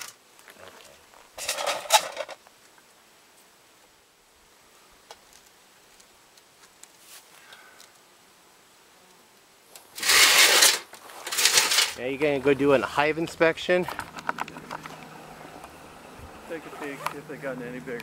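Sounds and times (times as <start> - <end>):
rustling: 4.8 - 8.1, 9.1 - 18.0.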